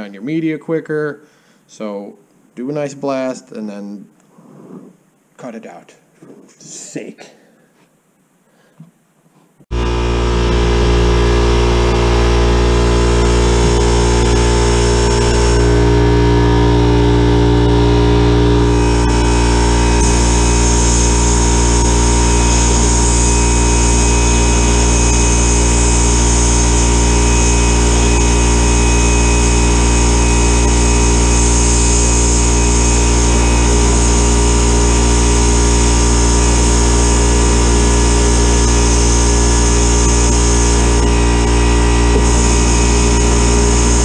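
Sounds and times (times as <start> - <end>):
air compressor humming: 9.7 - 44.0
sandblast gun hissing: 12.6 - 16.5, 18.4 - 44.0.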